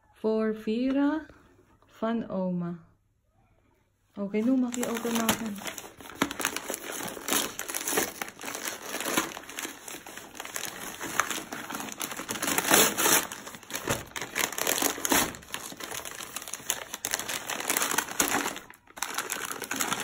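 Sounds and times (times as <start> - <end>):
wrapping paper crinkling and tearing: 4.4 - 20.0.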